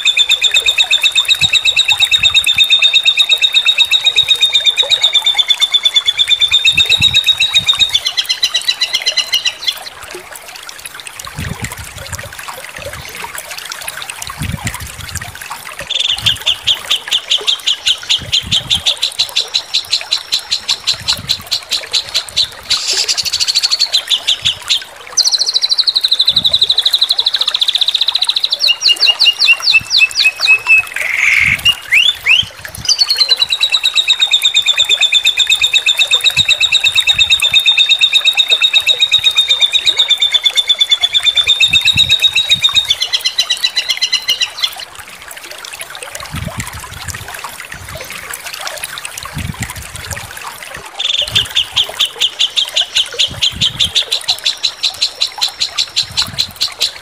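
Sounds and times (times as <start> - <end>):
songbird fast high trill: 22.7 - 23.8.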